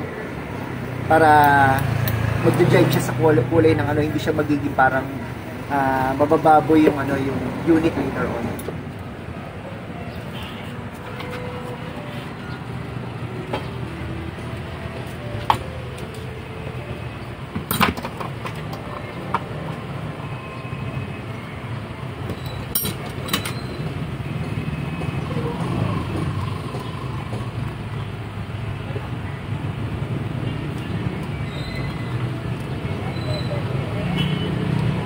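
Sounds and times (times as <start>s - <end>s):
low traffic rumble: 0.0s - 35.0s.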